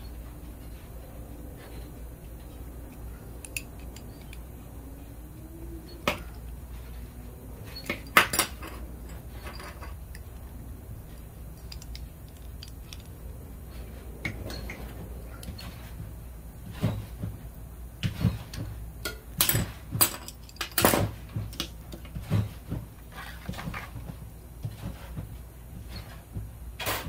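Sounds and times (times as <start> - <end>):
low steady hum: 0.0 - 27.0
metal tools clinking on steel table: 2.9 - 4.5, 7.7 - 10.4, 11.2 - 13.2, 19.0 - 21.1.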